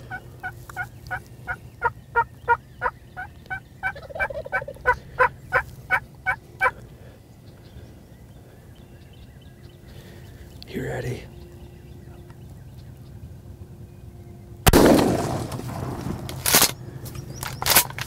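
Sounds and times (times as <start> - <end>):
turkey yelps: 1.8 - 6.8.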